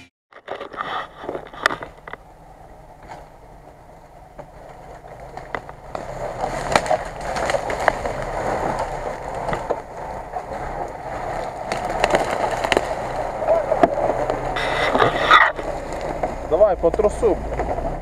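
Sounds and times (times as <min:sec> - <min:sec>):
tyres crunching over leaves: 0:00.4 - 0:18.0
low engine hum: 0:00.7 - 0:18.0
twigs snapping: 0:05.2 - 0:09.9, 0:10.8 - 0:16.4.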